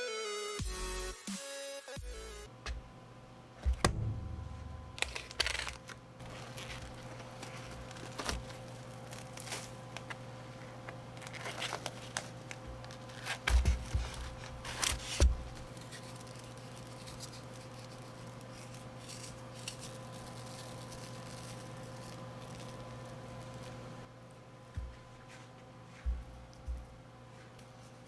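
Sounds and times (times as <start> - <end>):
cling film crinkling and tearing: 5.0 - 24.1.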